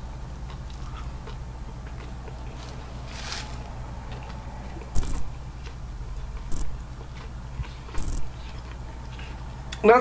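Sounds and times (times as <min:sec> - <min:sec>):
steady low hum: 0:00.0 - 0:10.0
close-up chewing: 0:00.4 - 0:02.9.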